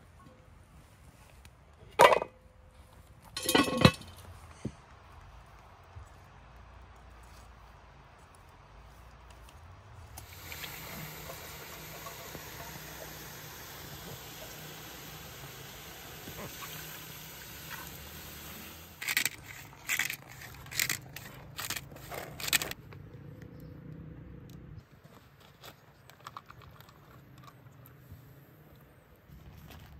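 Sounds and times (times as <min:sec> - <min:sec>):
pot simmering with steady hiss: 0:09.9 - 0:19.2.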